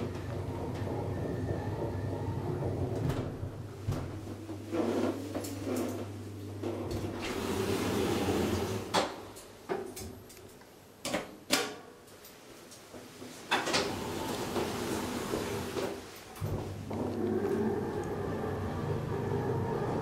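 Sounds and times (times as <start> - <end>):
elevator low steady hum: 0.0 - 8.9, 13.6 - 20.0
elevator doors sliding shut: 0.0 - 9.1, 13.5 - 20.0.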